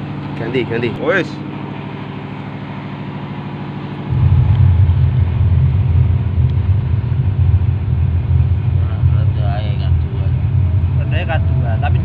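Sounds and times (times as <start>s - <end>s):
subwoofer bass test signal: 4.1s - 12.0s.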